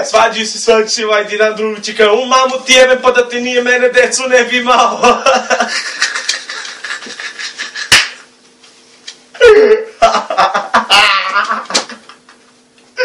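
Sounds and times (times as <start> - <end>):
men laughing: 4.9 - 8.3, 9.5 - 12.5.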